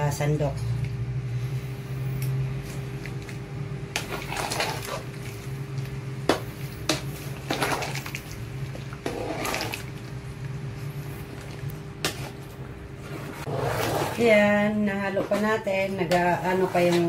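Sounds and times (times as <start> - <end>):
steady low hum: 0.0 - 17.0
liquid sloshing in a pot: 3.9 - 17.0.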